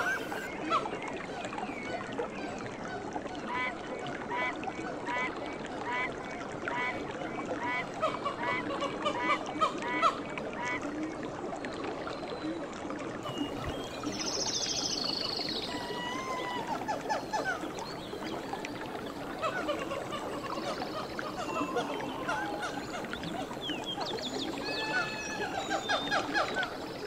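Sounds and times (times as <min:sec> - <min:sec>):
birds calling: 0:00.0 - 0:00.5, 0:13.3 - 0:27.0.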